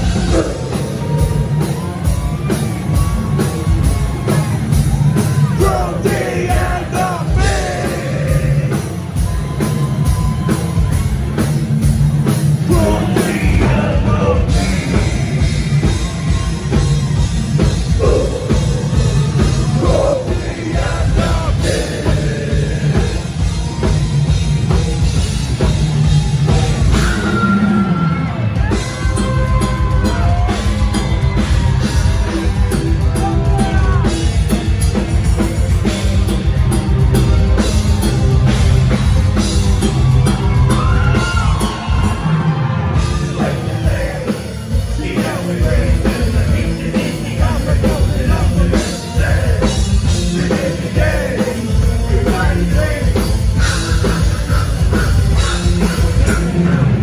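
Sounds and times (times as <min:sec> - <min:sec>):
harsh singing vocals: 0:00.0 - 0:01.3, 0:05.4 - 0:09.0, 0:12.6 - 0:16.0, 0:17.9 - 0:23.5, 0:43.0 - 0:57.0
distorted guitars: 0:00.0 - 0:57.0
extreme metal band playing: 0:00.0 - 0:57.0
pounding drum kit: 0:00.0 - 0:57.0.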